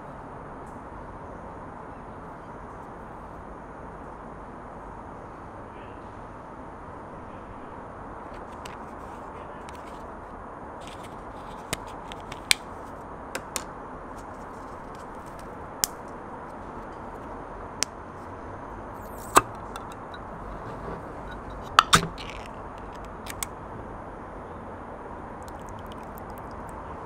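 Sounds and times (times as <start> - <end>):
tin can ring-pull snapping open: 19.0 - 20.2, 21.3 - 23.5.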